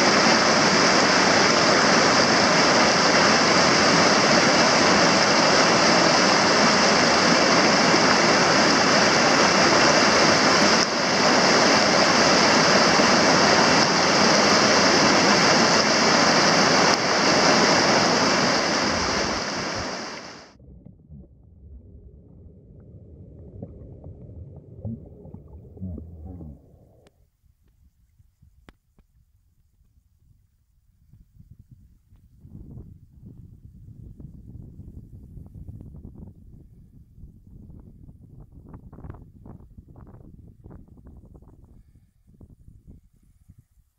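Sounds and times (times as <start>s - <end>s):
whitewater rapids rushing: 0.0s - 20.5s
muffled underwater gurgles: 18.9s - 27.2s.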